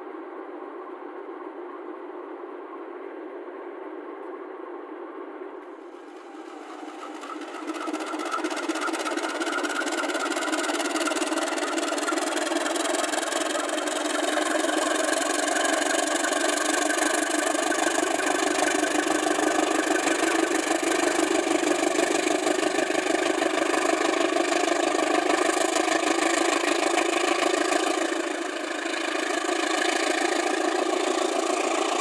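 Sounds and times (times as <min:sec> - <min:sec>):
locomotive diesel engine: 0:05.7 - 0:32.0.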